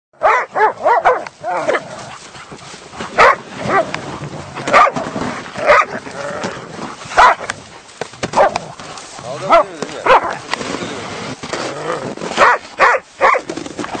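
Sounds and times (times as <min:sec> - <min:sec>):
dogs barking and yelping: 0:00.2 - 0:04.0, 0:04.6 - 0:06.0, 0:07.1 - 0:07.5, 0:08.3 - 0:08.6, 0:09.4 - 0:10.4, 0:12.4 - 0:13.6.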